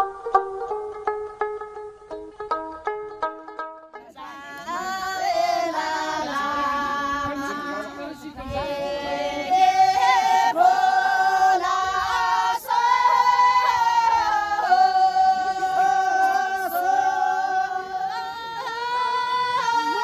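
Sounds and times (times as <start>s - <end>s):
women singing in unison: 4.0s - 20.0s.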